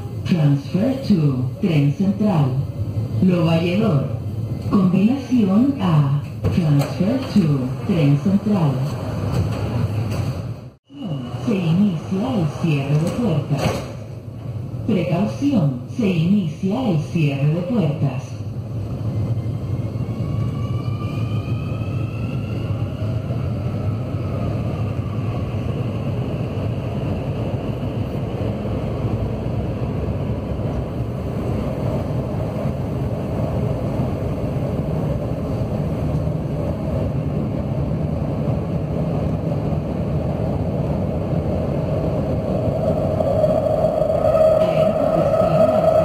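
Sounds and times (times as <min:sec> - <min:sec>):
wheels rumbling on rail: 0:00.0 - 0:46.0
train whine: 0:18.4 - 0:46.0.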